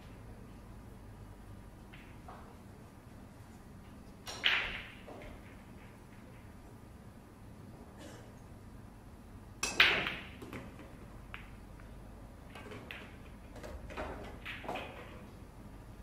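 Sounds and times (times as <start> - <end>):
pool balls clicking: 1.8 - 2.6, 3.8 - 6.8, 9.6 - 15.4.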